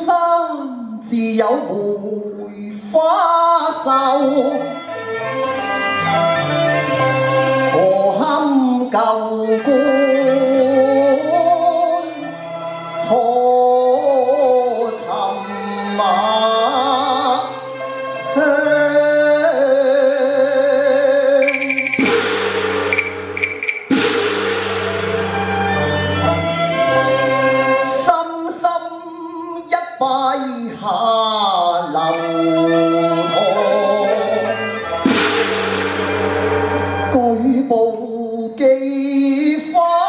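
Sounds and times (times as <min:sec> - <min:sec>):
man singing into a microphone: 0:00.0 - 0:04.9, 0:07.7 - 0:17.6, 0:18.2 - 0:21.5, 0:27.8 - 0:34.9, 0:37.1 - 0:40.0
instrumental accompaniment with bass: 0:02.8 - 0:28.1, 0:32.3 - 0:38.1.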